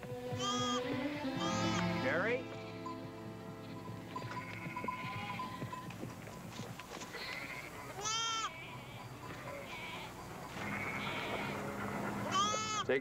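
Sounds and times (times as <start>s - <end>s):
soft background music: 0.0s - 13.0s
faint sheep bleats: 0.4s - 0.8s, 3.6s - 5.8s, 7.1s - 13.0s
lamb bleating: 0.4s - 2.9s, 3.6s - 5.8s, 7.0s - 13.0s.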